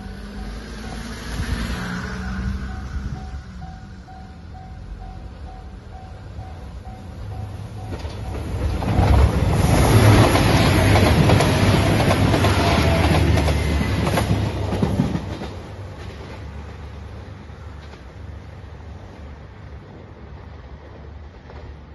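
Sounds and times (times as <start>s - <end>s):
train wheels clacking over rail joints: 7.8s - 16.4s.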